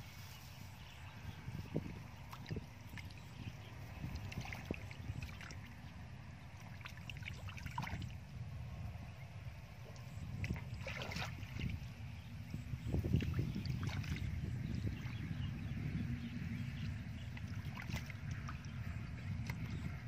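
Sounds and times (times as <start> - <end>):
steady low rumble: 0.0 - 20.0
hands splashing in muddy water: 10.4 - 11.8.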